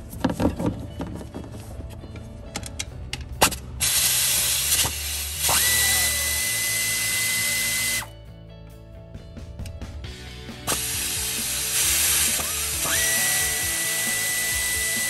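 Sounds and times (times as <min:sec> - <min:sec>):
power tool running: 0:03.8 - 0:08.1, 0:10.6 - 0:15.0.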